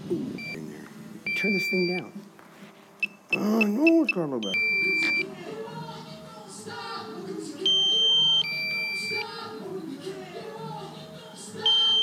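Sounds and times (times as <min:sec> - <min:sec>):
electronic two-tone warning beep: 0:00.4 - 0:00.6, 0:01.3 - 0:02.1, 0:03.0 - 0:05.3, 0:07.7 - 0:09.3, 0:11.6 - 0:12.0
murmur of voices or music: 0:02.1 - 0:12.0.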